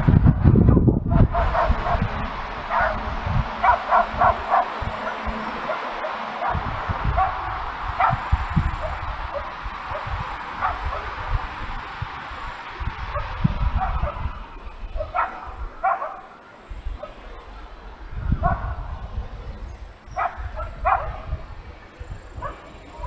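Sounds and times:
low rumble: 0:00.0 - 0:15.9
distant dog barking: 0:01.1 - 0:11.2, 0:13.1 - 0:17.6, 0:18.4 - 0:19.4, 0:20.1 - 0:21.5, 0:22.3 - 0:23.0.

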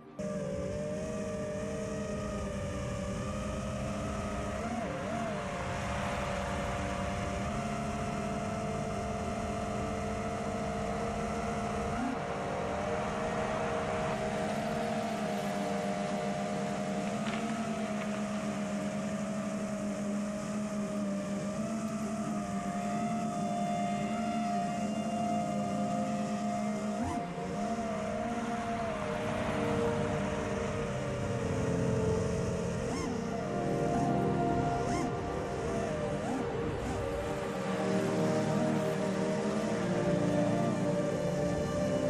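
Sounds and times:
drone motors whining: 0:00.0 - 0:42.0.

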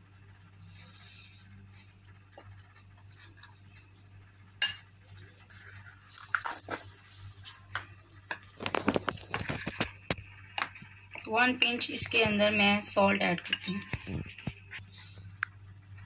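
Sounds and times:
metal spoon clinking in glass bowl: 0:04.6 - 0:04.8, 0:06.2 - 0:07.2.

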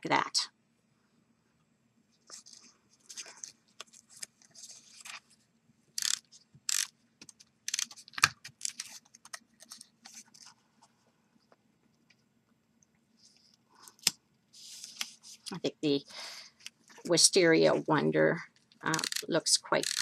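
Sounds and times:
paper rustling: 0:02.3 - 0:05.4, 0:07.8 - 0:11.0.

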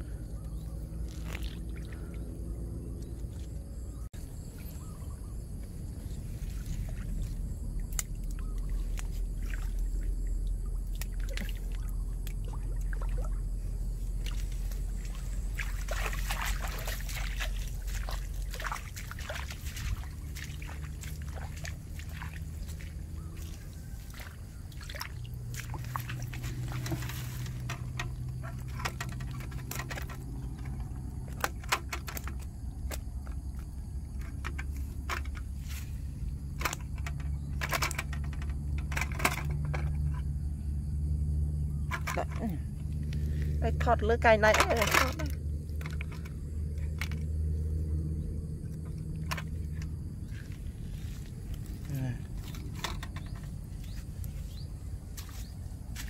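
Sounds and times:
pond water splashing: 0:00.0 - 0:03.6, 0:04.2 - 0:40.2, 0:41.8 - 0:56.0
rustles and clicks of fishing line: 0:00.4 - 0:02.2, 0:02.8 - 0:40.6, 0:41.6 - 0:43.6, 0:44.4 - 0:56.0.

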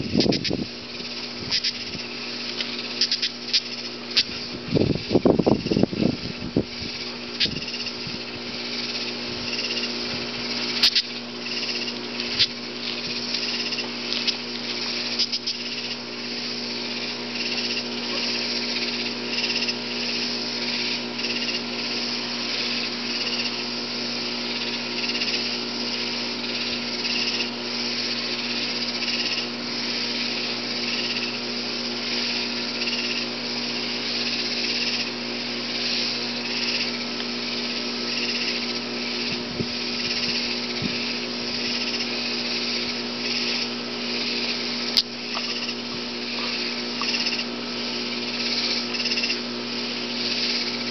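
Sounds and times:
katydid stridulating buzz: 0:00.0 - 0:50.9
low steady hum: 0:00.0 - 0:50.9.

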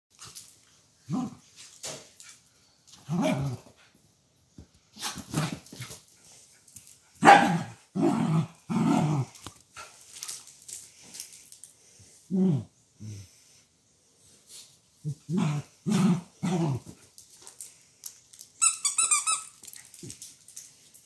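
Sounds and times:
small dogs barking: 0:07.2 - 0:07.7
small dogs growling: 0:07.9 - 0:09.5, 0:12.3 - 0:13.3, 0:15.0 - 0:17.0.

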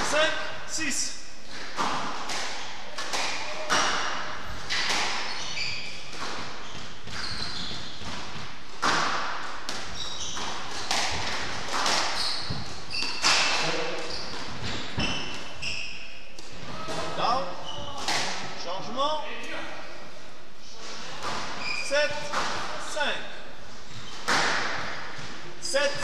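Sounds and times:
squash ball hitting walls: 0:01.4 - 0:15.6, 0:17.9 - 0:18.6, 0:20.8 - 0:22.8, 0:23.9 - 0:25.5
shoes squeaking on wooden floor: 0:03.5 - 0:09.1, 0:09.7 - 0:18.2, 0:20.6 - 0:23.0.

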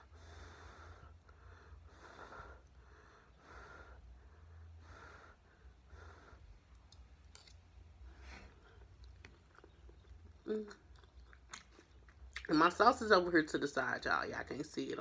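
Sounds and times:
chewing food: 0:08.4 - 0:12.7.

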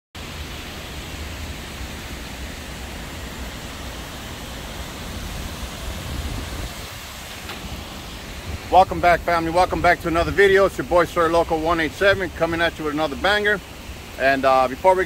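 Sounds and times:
fountain water cascading: 0:00.2 - 0:15.0.

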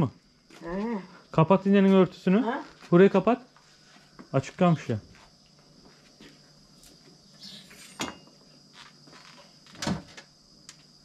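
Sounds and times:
faint high whine: 0:00.0 - 0:11.0
cover closing with knocks: 0:09.7 - 0:10.3.

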